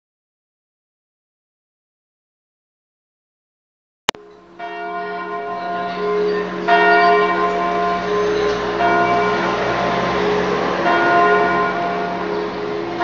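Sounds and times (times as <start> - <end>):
church bells ringing: 4.2 - 13.0.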